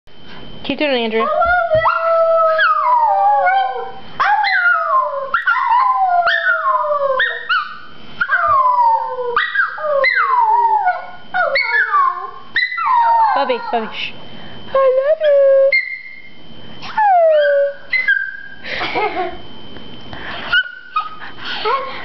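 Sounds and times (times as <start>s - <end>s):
small dog howling: 1.3s - 13.9s, 16.8s - 18.6s.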